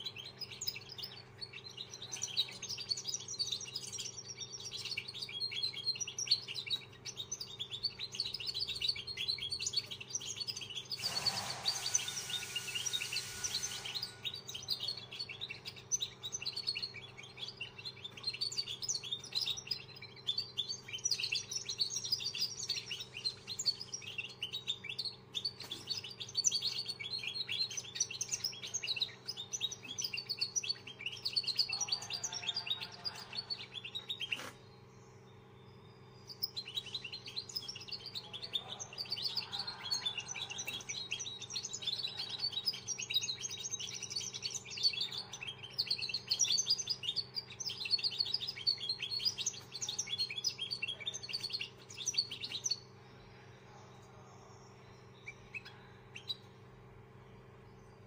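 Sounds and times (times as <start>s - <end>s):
finch chirping and twittering: 0.0s - 58.0s.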